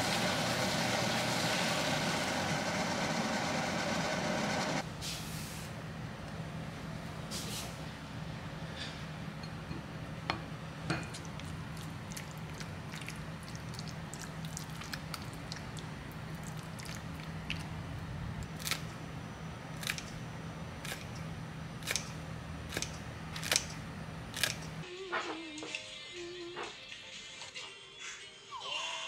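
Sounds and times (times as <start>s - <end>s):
steady low hum: 5.7s - 25.0s
kitchen scissors snipping: 21.8s - 23.8s.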